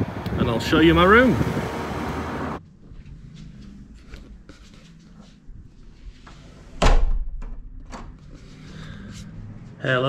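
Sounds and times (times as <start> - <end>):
door swinging shut with thud: 6.8 - 8.2.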